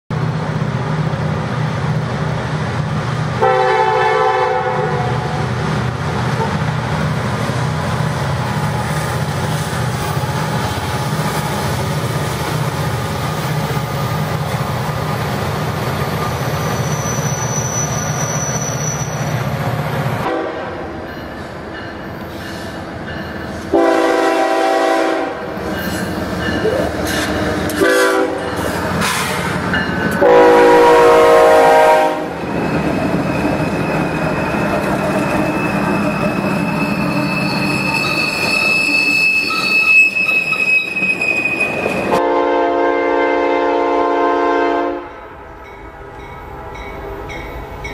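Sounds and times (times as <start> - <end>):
diesel locomotive engines running: 0.1 - 44.0
train wheels rumbling: 0.1 - 44.2
train air horn blasts: 3.4 - 5.4, 20.2 - 20.8, 23.7 - 25.5, 27.8 - 29.6, 30.2 - 32.4, 42.1 - 46.2
high-pitched squeal: 15.9 - 20.0, 32.4 - 42.2.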